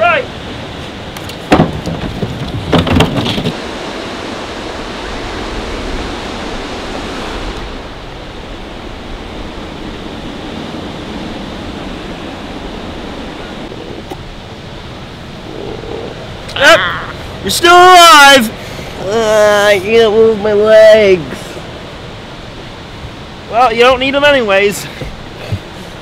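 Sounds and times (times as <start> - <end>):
board and body crashing down stairs: 1.4 - 3.6
outdoor rushing hiss: 17.1 - 26.0.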